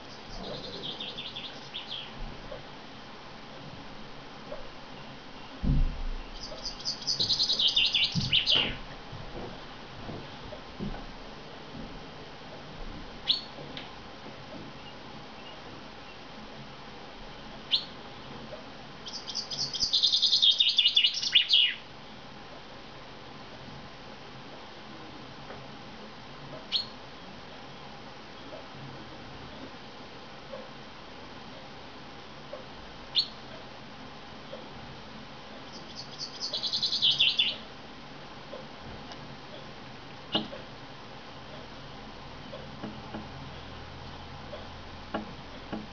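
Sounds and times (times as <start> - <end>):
bird song phrase: 0.0 - 2.2, 6.2 - 8.8, 19.1 - 21.8, 35.8 - 37.6
chaffinch song: 0.0 - 5.6, 6.2 - 8.9, 13.2 - 13.6, 17.3 - 22.7, 26.6 - 28.8, 29.6 - 38.7
sharp knock: 5.6 - 6.2.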